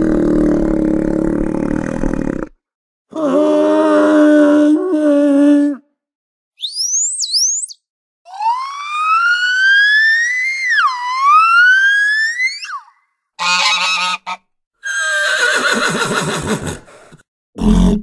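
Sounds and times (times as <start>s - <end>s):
dolphin whistle: 6.6s - 13.0s
horse whinnying: 14.8s - 16.9s.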